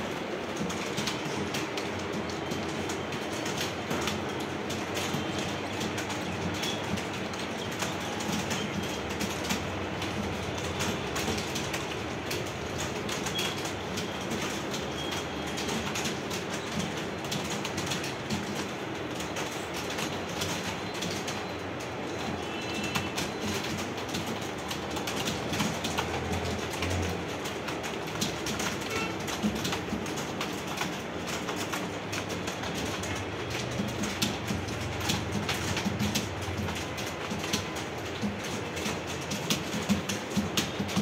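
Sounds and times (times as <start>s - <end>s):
fast keyboard typing: 0.0s - 41.0s.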